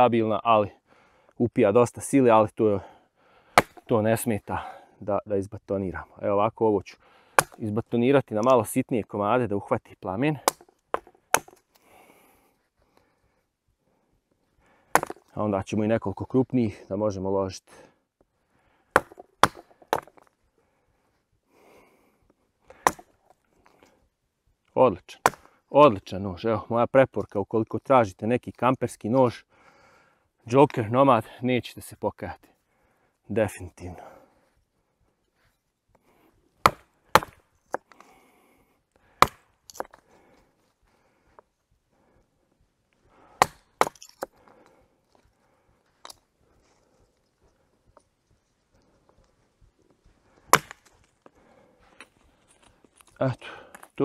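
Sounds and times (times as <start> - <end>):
knife batoned through wood knocks: 3.6 - 3.9, 7.4 - 7.6, 10.5 - 11.6, 15.0 - 15.2, 19.0 - 20.2, 22.8 - 23.1, 36.7 - 37.8
wood clattering: 3.6 - 3.9, 10.5 - 11.7, 14.9 - 15.3, 19.0 - 20.3.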